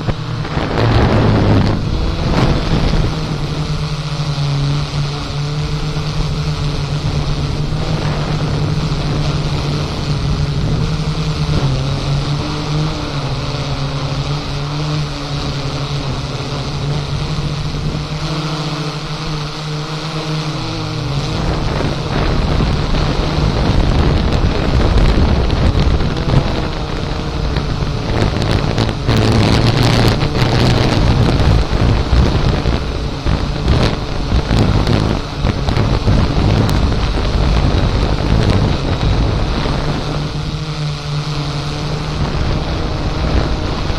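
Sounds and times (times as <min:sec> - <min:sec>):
drone propellers humming: 0:00.0 - 0:43.9
wind buffeting microphone: 0:00.0 - 0:43.9.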